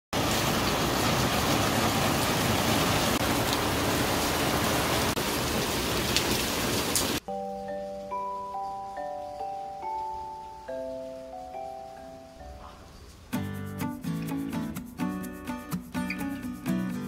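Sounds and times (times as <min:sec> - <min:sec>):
heavy rain on pavement: 0:00.1 - 0:07.2
marimba music: 0:07.2 - 0:17.0.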